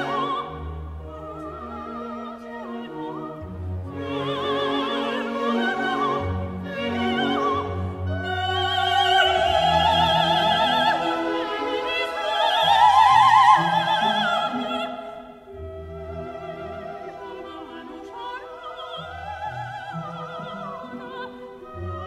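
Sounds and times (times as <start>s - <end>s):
operatic singing with orchestra: 0.0s - 22.0s.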